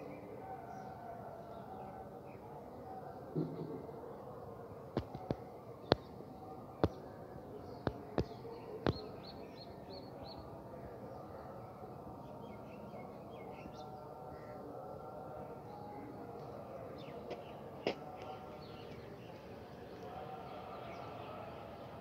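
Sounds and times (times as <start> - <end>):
small birds chirping: 5.0 - 10.5.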